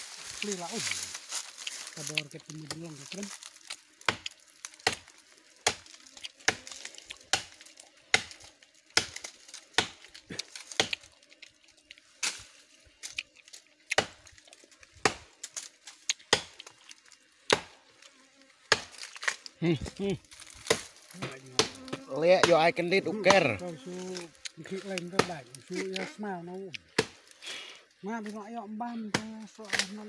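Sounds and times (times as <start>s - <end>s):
hand tool chopping wood: 4.1s - 11.1s, 13.9s - 14.2s, 15.0s - 16.7s, 17.5s - 17.8s, 18.7s - 19.4s, 20.6s - 23.5s, 24.9s - 25.4s, 27.0s - 27.2s.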